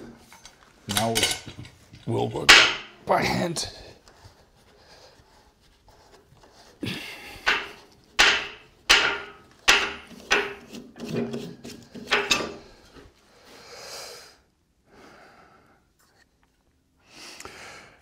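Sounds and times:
wood rubbing: 0:04.0 - 0:13.1
wooden bowl knocking and creaking: 0:07.4 - 0:12.6.

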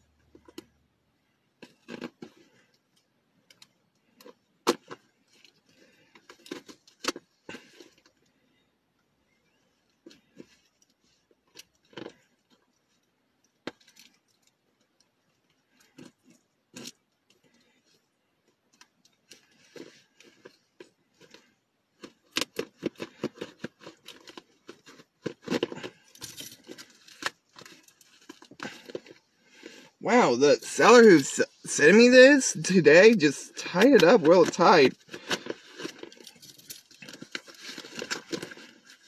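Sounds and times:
rustling and tearing: 0:19.2 - 0:30.0, 0:33.7 - 0:39.0
hands tearing a package: 0:36.9 - 0:39.0.

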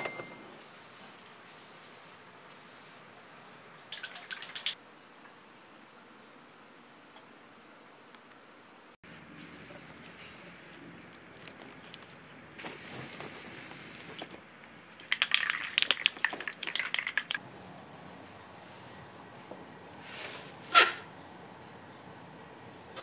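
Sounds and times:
spray-paint can hissing: 0:00.6 - 0:03.1, 0:09.1 - 0:10.8, 0:12.6 - 0:14.3
sharp clicking rattles: 0:15.0 - 0:17.4.

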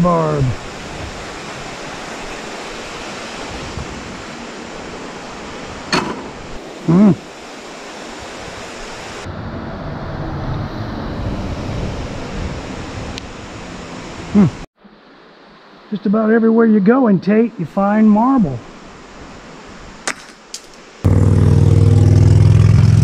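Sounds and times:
flowing creek water: 0:00.0 - 0:09.3
person humming: 0:06.8 - 0:07.2, 0:14.3 - 0:14.7.

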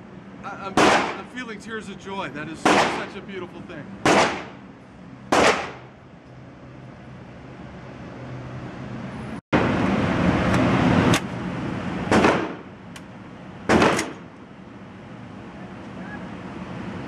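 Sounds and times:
gunshots with echo: 0:00.8 - 0:01.3, 0:02.6 - 0:03.2, 0:04.0 - 0:04.6, 0:05.3 - 0:05.9, 0:12.1 - 0:12.7, 0:13.7 - 0:14.2
loud rushing noise: 0:07.5 - 0:12.7.

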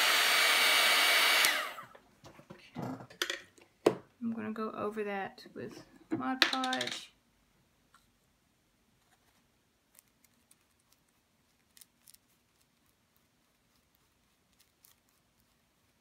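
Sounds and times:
paintbrush dabbing ticks: 0:09.9 - 0:16.0.

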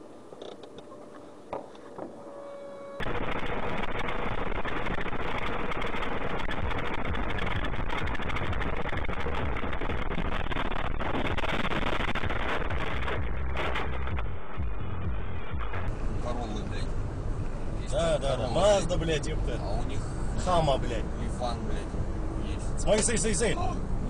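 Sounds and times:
road and engine noise in a car: 0:12.4 - 0:24.0.

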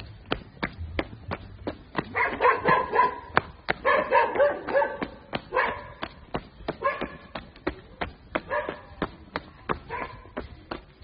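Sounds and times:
footsteps on gravel: 0:00.0 - 0:11.0
dog barking: 0:02.1 - 0:06.0, 0:06.8 - 0:07.3, 0:08.5 - 0:08.9, 0:09.9 - 0:10.2.

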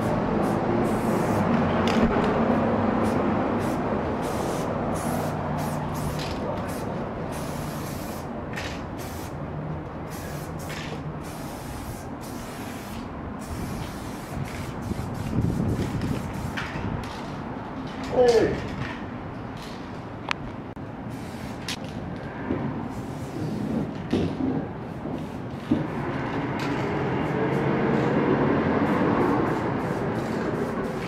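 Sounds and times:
spray can hissing: 0:00.4 - 0:01.5, 0:03.0 - 0:09.4, 0:10.1 - 0:16.6, 0:21.1 - 0:21.7, 0:29.0 - 0:31.0.

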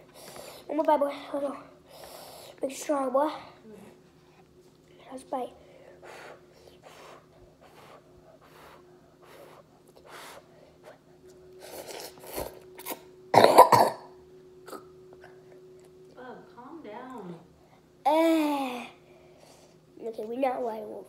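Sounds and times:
child coughing: 0:12.8 - 0:14.9.

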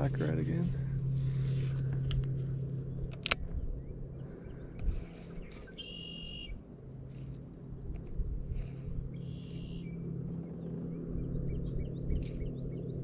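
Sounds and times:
low steady hum: 0:00.0 - 0:13.0
buzzy bird call: 0:05.6 - 0:06.6.

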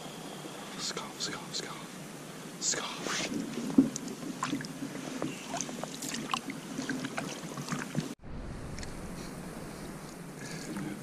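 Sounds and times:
canoe paddle stroking water: 0:03.0 - 0:08.2.

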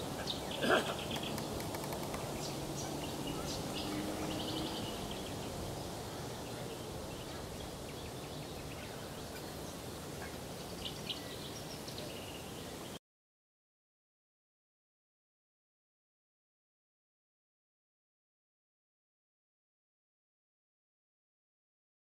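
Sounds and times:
steady background hiss: 0:00.0 - 0:13.0.

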